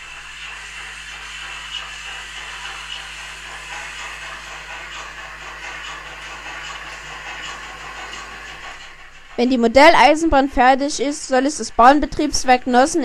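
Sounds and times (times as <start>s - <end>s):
model train rhythmic clicking: 0.0s - 9.6s
steady hiss: 0.0s - 9.8s.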